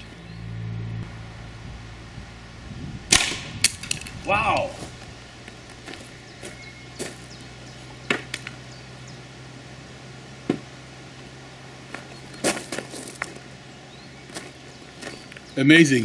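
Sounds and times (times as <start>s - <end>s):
footsteps on gravel: 3.7s - 8.7s, 10.4s - 15.6s.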